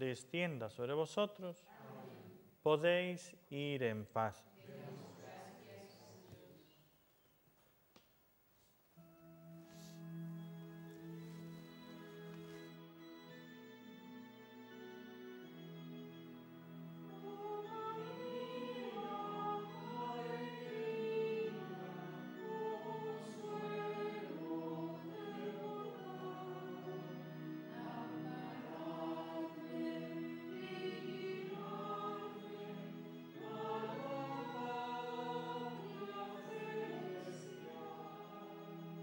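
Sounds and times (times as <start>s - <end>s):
choir singing: 1.7s - 2.4s, 4.6s - 6.5s, 10.5s - 39.0s.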